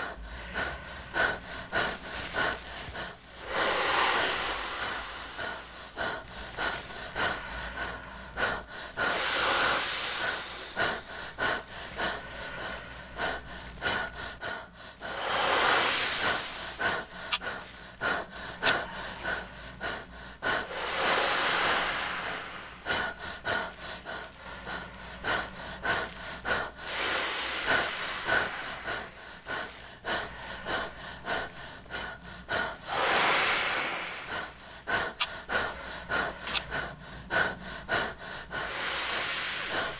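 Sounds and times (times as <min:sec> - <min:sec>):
man exhaling into plastic bag: 0:00.1 - 0:14.2, 0:15.0 - 0:31.7, 0:32.3 - 0:36.9, 0:38.6 - 0:39.9
plastic bag crackling: 0:00.9 - 0:08.2, 0:15.0 - 0:20.1, 0:20.8 - 0:29.9.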